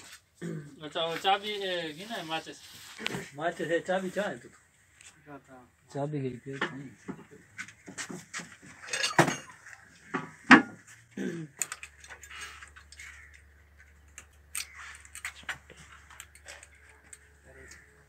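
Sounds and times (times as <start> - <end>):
metal tools clinking: 8.6 - 9.7, 11.5 - 13.0.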